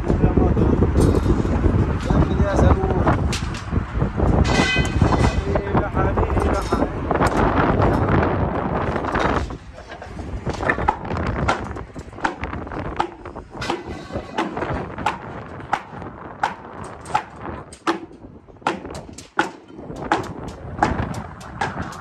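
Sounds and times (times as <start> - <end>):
wind rumble on microphone: 0.0 - 22.0
knocks and clanks on steel rebar: 4.4 - 5.6, 8.8 - 22.0.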